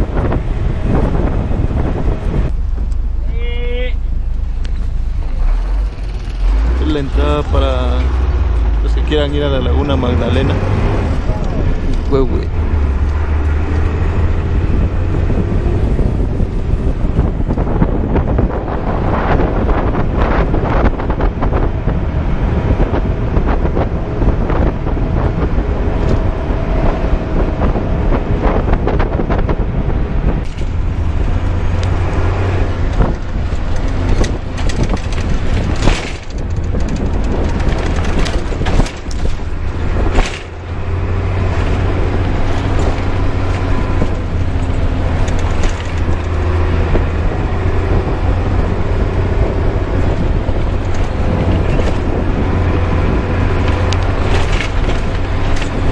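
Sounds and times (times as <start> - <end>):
bus engine drone: 0.0 - 55.9
road noise: 0.0 - 55.9
steady low hum: 0.7 - 9.1.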